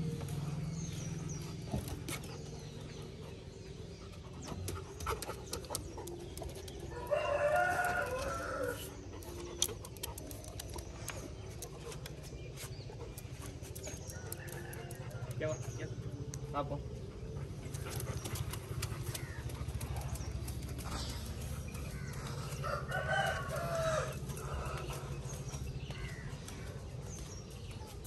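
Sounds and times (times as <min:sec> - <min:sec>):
rooster crowing: 0:07.0 - 0:08.8, 0:22.6 - 0:24.2.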